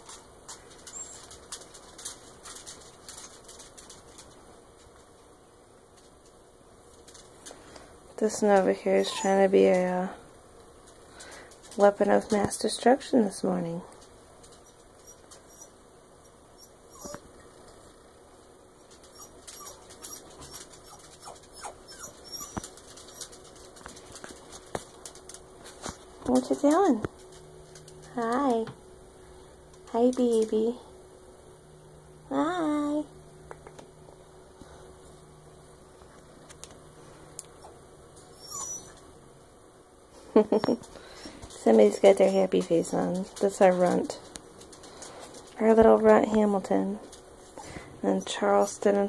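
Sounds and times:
room hiss: 0.0 - 49.0.

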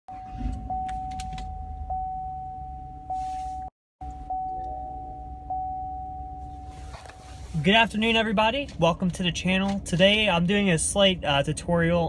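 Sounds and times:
electronic warning chime: 4.1 - 6.8.

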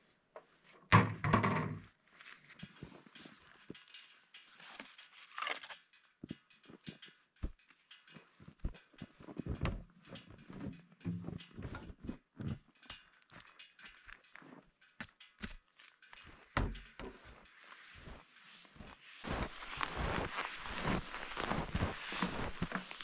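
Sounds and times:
skis knocking: 8.6 - 12.6, 19.2 - 23.0
boots crunching through snow: 18.0 - 23.0.

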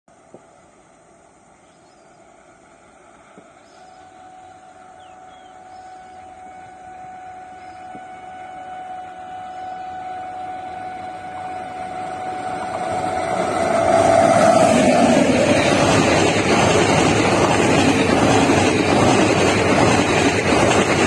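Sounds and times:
electric train approaching at speed: 0.1 - 21.0
steady high tone: 3.7 - 19.8.

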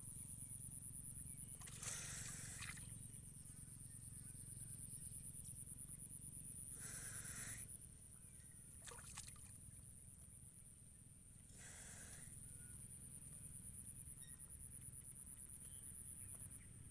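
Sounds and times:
steady high-pitched whine: 0.0 - 16.9
water sloshing and trickling: 1.5 - 2.9, 8.8 - 9.7.

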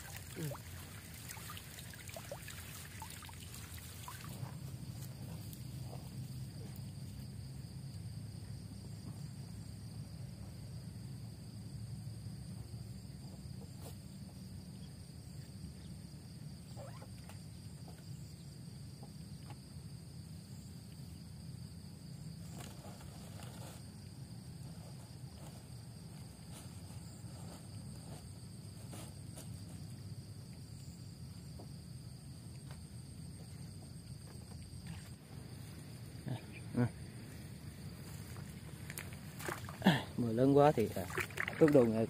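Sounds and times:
insects trilling: 0.0 - 42.0
rustling through grass and brush: 22.4 - 24.1.

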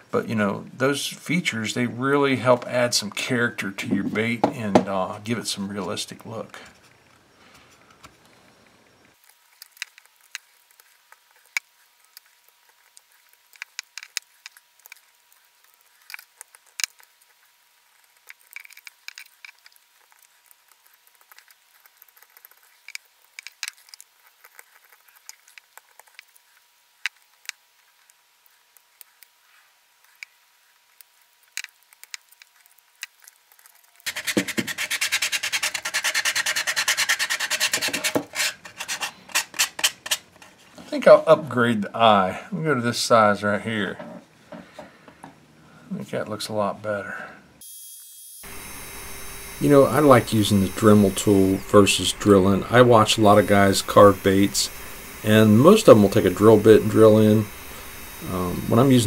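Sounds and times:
knife cutting and scraping wood: 30.0 - 40.9
sandpaper rubbing wood: 34.0 - 40.2, 49.5 - 59.0.

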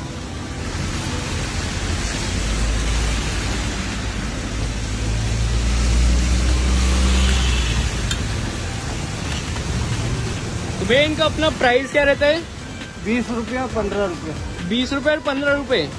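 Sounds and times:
vehicle engine rumbling: 0.0 - 11.6.

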